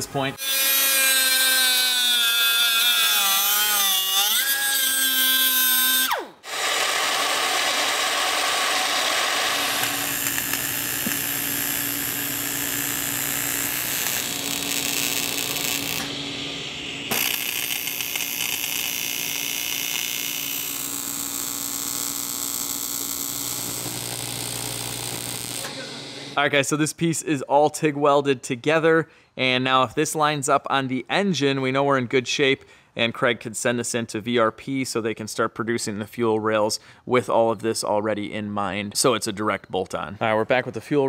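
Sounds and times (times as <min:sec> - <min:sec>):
welder hissing and buzzing: 0:00.4 - 0:26.4.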